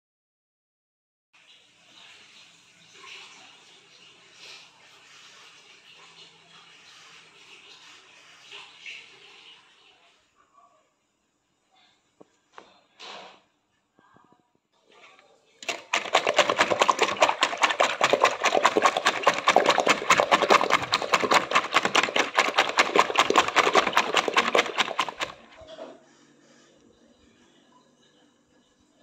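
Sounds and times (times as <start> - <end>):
whisk beating eggs in bowl: 15.6 - 25.6.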